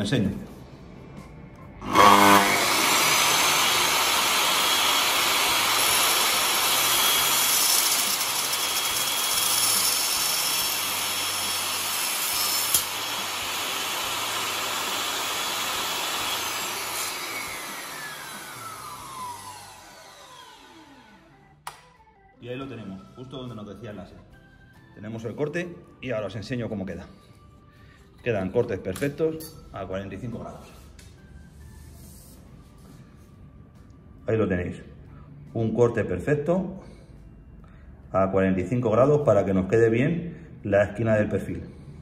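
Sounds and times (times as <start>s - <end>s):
mitre saw cutting aluminium: 1.8s - 21.2s
saw blade winding down whine: 1.8s - 21.4s.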